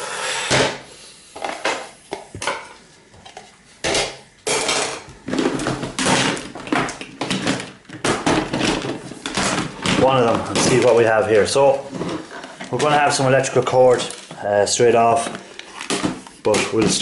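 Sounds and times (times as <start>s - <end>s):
hard plastic clattering on wood: 3.3s - 13.3s, 15.0s - 17.0s.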